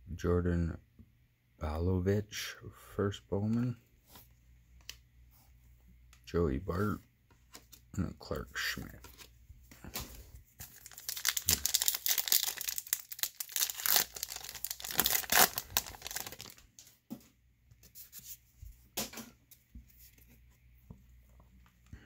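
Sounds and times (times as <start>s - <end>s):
cards rustling: 7.4s - 16.9s
foil pack tearing and crinkling: 10.6s - 16.6s.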